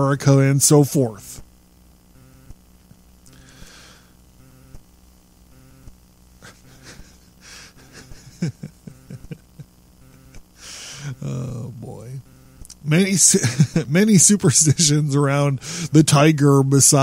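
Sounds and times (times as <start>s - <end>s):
faint steady hum: 0.0s - 17.0s
man breathing: 3.3s - 4.2s, 6.6s - 7.9s, 10.6s - 11.2s, 15.6s - 16.0s.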